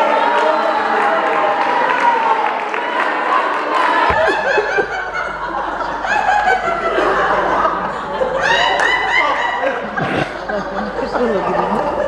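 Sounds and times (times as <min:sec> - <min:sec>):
roomful of people laughing: 0:00.0 - 0:12.0.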